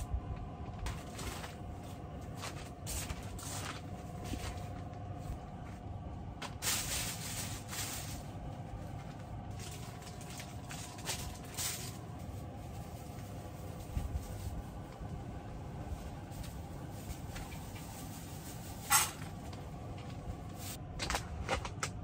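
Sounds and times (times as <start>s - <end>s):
steady low hum: 0.0s - 22.0s
plastic packaging crinkling: 6.5s - 14.9s.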